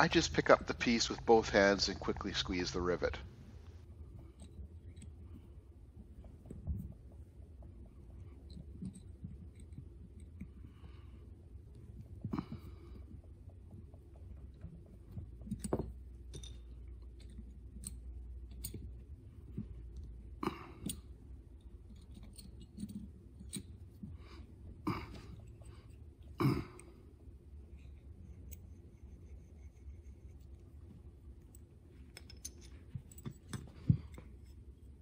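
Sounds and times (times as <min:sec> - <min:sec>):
metal tool clicks and scrapes: 0:21.9 - 0:23.8, 0:31.5 - 0:35.0.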